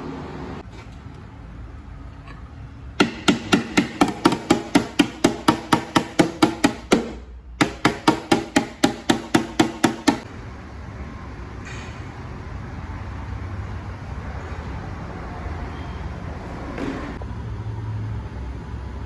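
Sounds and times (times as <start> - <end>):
body hammer tapping car panel: 3.0 - 10.2.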